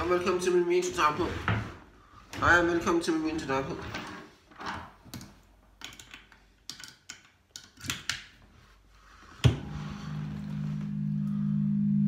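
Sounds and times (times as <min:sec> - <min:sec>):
objects clicking and knocking: 0:04.7 - 0:08.4
steady low tone: 0:09.5 - 0:12.0.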